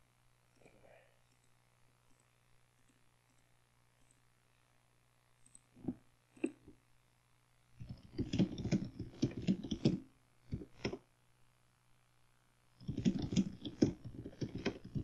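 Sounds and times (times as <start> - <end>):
faint low hum: 0.0 - 15.0
keyboard keys clicking: 7.8 - 11.0, 12.8 - 15.0.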